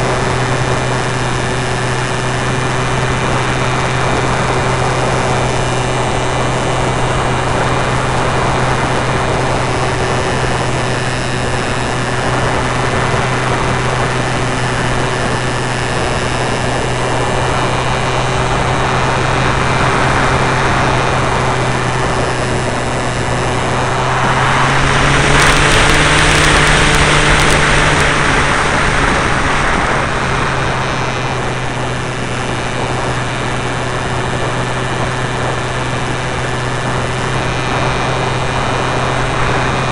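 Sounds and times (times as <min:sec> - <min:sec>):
model plane motor humming: 0:00.0 - 0:39.9
rush of air: 0:19.3 - 0:36.2.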